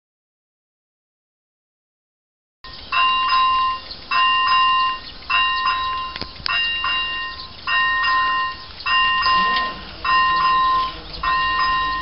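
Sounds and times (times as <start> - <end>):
level crossing warning bell: 2.6 - 12.0.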